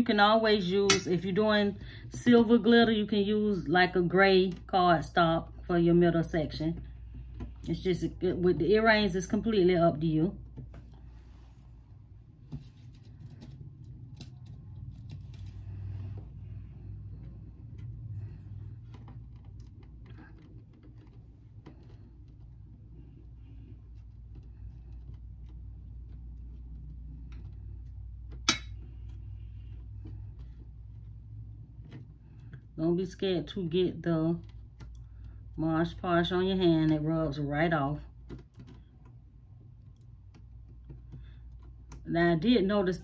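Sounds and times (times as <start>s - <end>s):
steady low hum: 0.0s - 43.0s.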